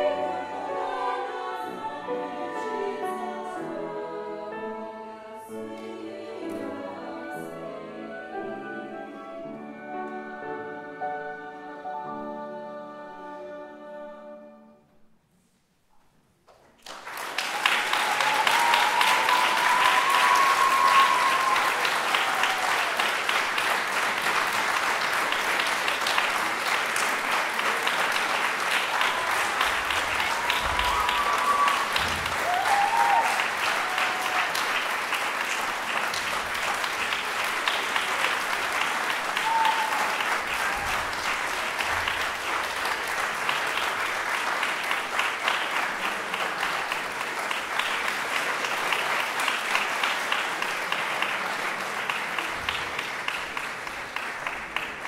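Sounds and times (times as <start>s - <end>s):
audience clapping: 16.4s - 55.0s.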